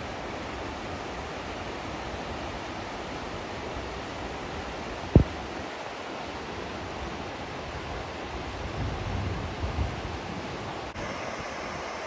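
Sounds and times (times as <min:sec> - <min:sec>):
low thump: 0:05.1 - 0:05.4
waterfall rushing: 0:10.9 - 0:12.0.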